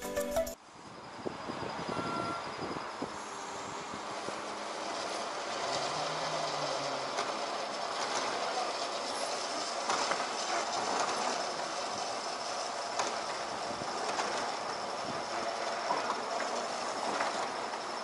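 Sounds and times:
carriage rolling on metal rails: 0:04.9 - 0:18.0.

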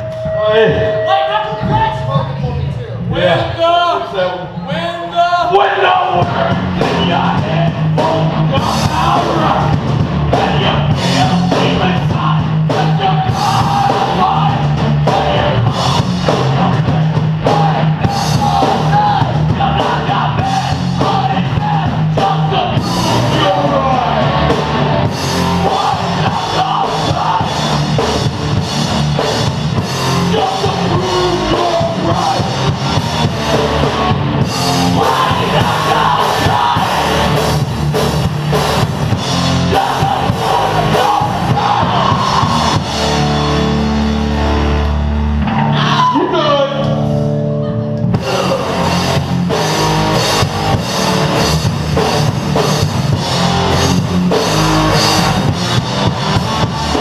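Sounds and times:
drum kit: 0:05.8 - 0:47.2, 0:48.0 - 0:57.0
electric guitars: 0:06.1 - 0:57.0
person singing into microphone: 0:34.9 - 0:37.2, 0:39.7 - 0:42.6.

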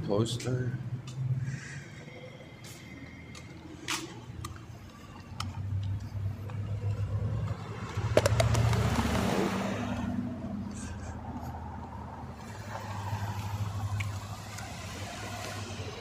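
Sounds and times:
low rumble of street traffic: 0:00.0 - 0:16.0
car driving past: 0:05.6 - 0:16.0.

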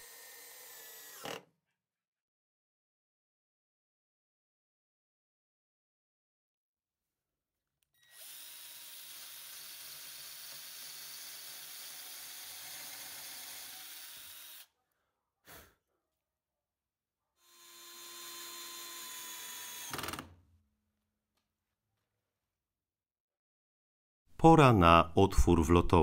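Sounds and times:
drill driving screw: 0:00.0 - 0:01.5, 0:08.0 - 0:14.7, 0:17.4 - 0:20.3
power drill boring: 0:00.0 - 0:01.5, 0:08.0 - 0:14.7, 0:17.4 - 0:20.3.

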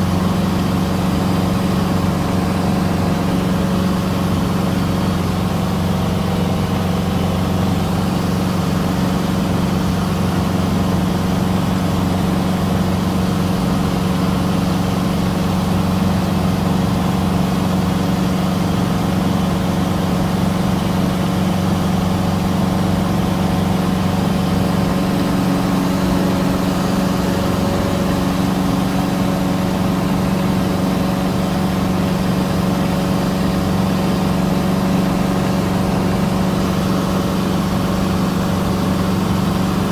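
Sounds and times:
airplane engine drone in cockpit: 0:00.0 - 0:39.9.

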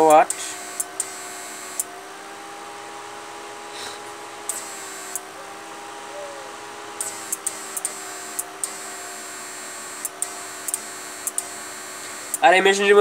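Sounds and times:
inverter electrical hum: 0:00.0 - 0:13.0
short sharp clicks: 0:04.5 - 0:05.3, 0:10.0 - 0:12.4.

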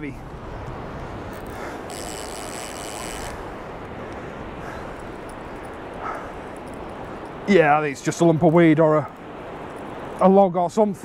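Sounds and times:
wind buffeting microphone: 0:00.0 - 0:11.0
thin high whir: 0:01.4 - 0:03.4.

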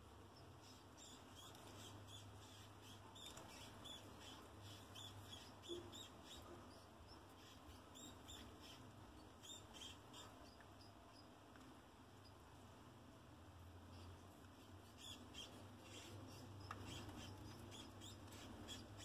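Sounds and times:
rats squeaking: 0:00.4 - 0:11.3, 0:13.9 - 0:19.0.

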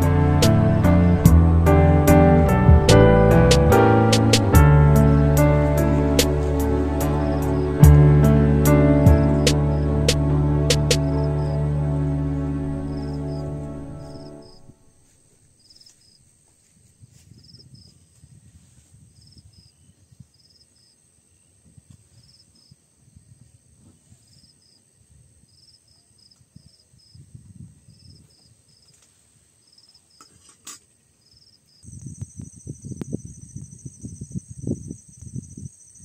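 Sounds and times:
low rumble: 0:00.0 - 0:14.8
high insect drone: 0:03.8 - 0:16.2, 0:31.4 - 0:36.0
crickets chirping: 0:04.6 - 0:18.1, 0:19.1 - 0:29.0, 0:29.6 - 0:30.4, 0:31.2 - 0:36.0.

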